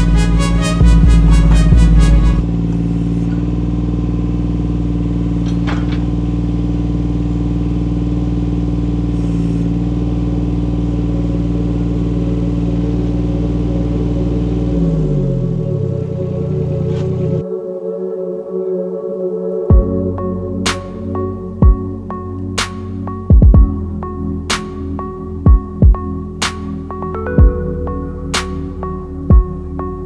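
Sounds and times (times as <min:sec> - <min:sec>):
background music: 0:00.0 - 0:02.5, 0:10.9 - 0:30.0
excavator diesel engine running: 0:00.0 - 0:17.4, 0:19.7 - 0:30.0
metallic clank: 0:05.4 - 0:06.3.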